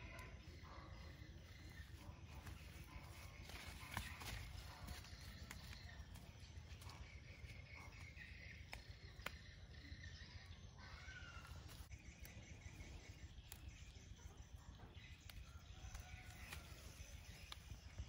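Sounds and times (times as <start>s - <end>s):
faint chirps: 0.0s - 18.0s
faint garden ambience: 0.0s - 18.0s.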